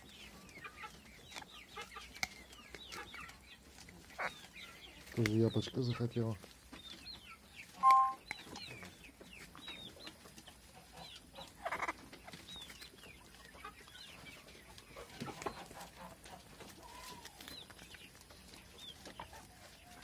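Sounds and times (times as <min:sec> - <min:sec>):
poultry chirping: 0:00.0 - 0:20.0
animal crunching an apple: 0:00.1 - 0:05.4.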